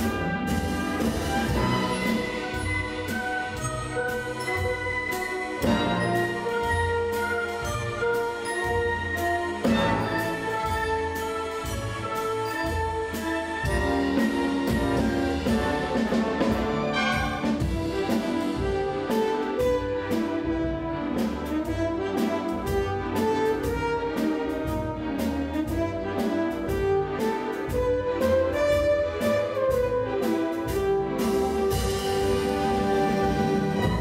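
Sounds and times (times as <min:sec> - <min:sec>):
bowed strings: 0:00.0 - 0:34.0
brass instruments: 0:00.0 - 0:34.0
steady beat: 0:13.7 - 0:28.4.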